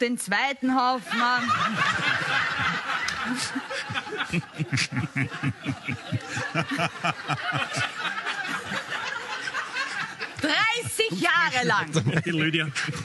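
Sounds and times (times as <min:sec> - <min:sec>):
group laughing: 0:00.9 - 0:13.0
rapid pulsing laugh: 0:01.4 - 0:10.3.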